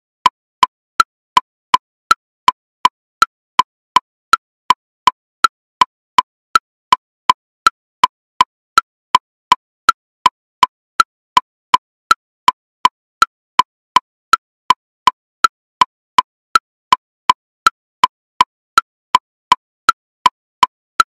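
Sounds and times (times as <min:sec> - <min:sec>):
metronome woodblock clicks: 0:00.0 - 0:21.0.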